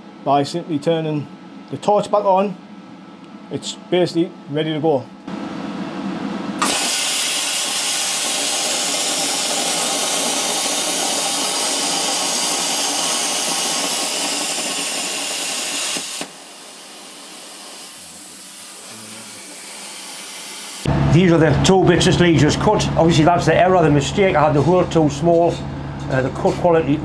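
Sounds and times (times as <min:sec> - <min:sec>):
plasma cutter arc hissing: 0:06.6 - 0:20.9.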